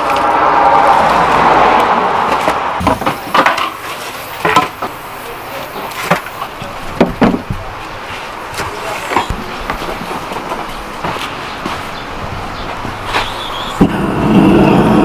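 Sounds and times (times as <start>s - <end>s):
low background noise: 0.0s - 14.4s
objects knocking and clattering: 2.3s - 3.8s, 4.4s - 5.0s, 6.0s - 7.7s.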